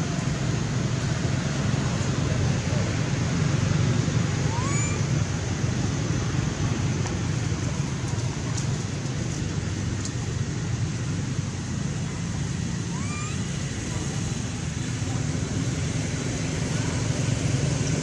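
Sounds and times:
distant traffic: 0.0s - 18.0s
wind rumble: 0.0s - 18.0s
high rising chirp: 12.9s - 13.6s.

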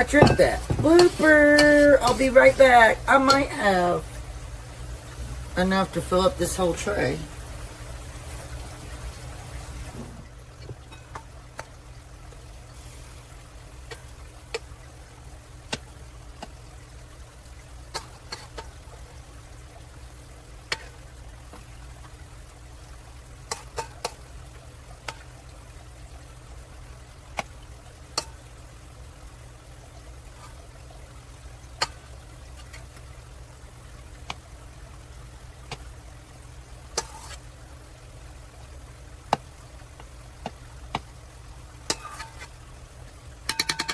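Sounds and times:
low steady hum: 0.0s - 43.9s
metal spoon clinking on metal bowl: 0.2s - 1.3s, 43.5s - 43.9s.

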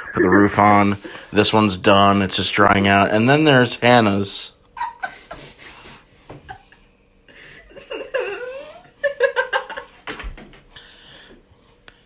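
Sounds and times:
people laughing and giggling: 0.0s - 0.8s, 4.8s - 10.2s.

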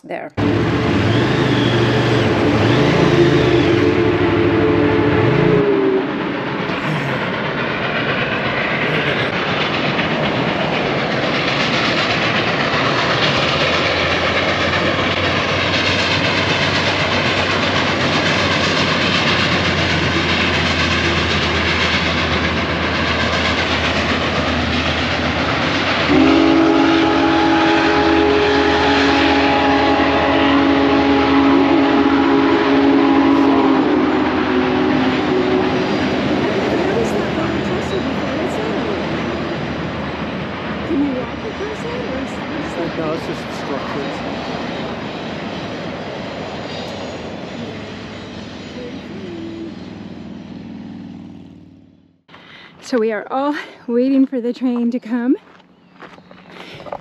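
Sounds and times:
steam locomotive rumble: 0.0s - 57.0s
highway traffic passing: 0.4s - 57.0s
locomotive chime whistle: 0.9s - 6.2s, 26.1s - 39.0s.

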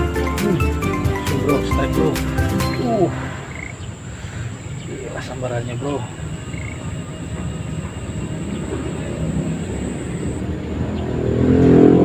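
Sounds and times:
motor vehicle rumble: 0.0s - 12.0s
thin high whine: 1.6s - 10.5s.

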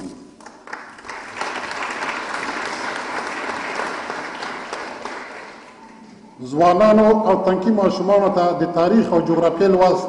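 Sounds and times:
audience applauding: 0.4s - 6.0s.

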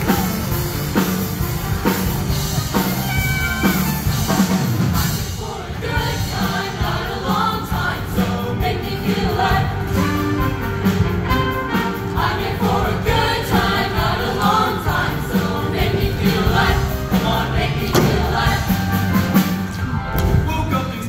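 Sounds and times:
live band with steady beat: 0.0s - 21.0s
choir singing: 3.6s - 20.1s.

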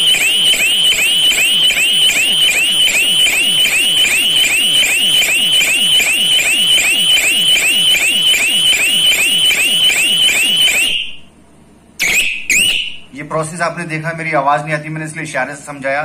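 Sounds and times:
electronic alarm siren whooping: 0.0s - 11.2s, 12.0s - 13.0s.

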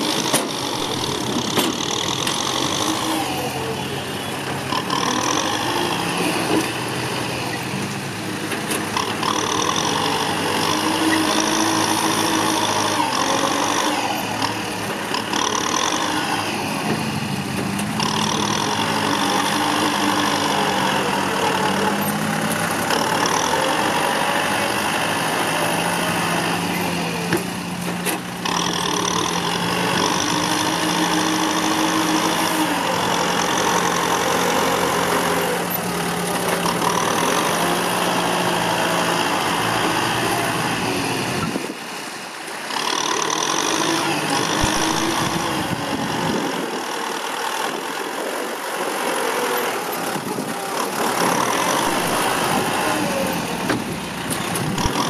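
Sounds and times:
tractor diesel engine under load: 0.0s - 55.0s
blade pushing dirt: 42.5s - 46.8s, 48.0s - 55.0s.

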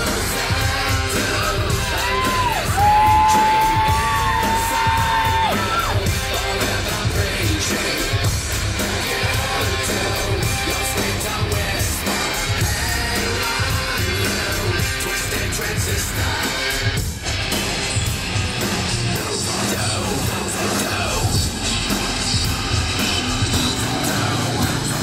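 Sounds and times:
shouted singing: 0.0s - 17.0s
distorted electric guitar: 0.0s - 25.0s
heavy drum beat: 0.0s - 25.0s
heavy metal song over speakers: 0.0s - 25.0s.

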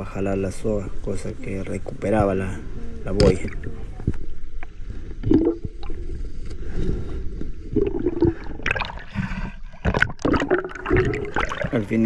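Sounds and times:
water splashing: 7.6s - 12.0s.

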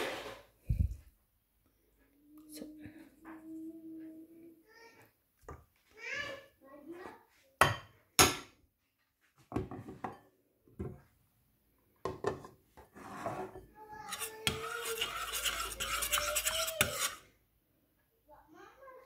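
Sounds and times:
metal ladle scraping in pot: 12.9s - 17.3s.

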